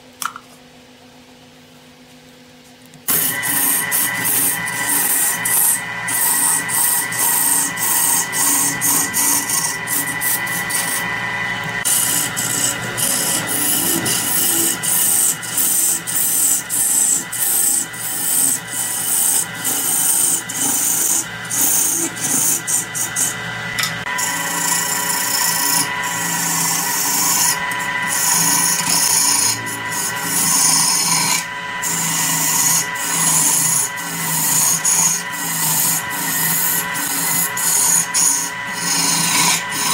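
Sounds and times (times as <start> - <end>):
lathe tool scraping wood: 3.1 - 39.9.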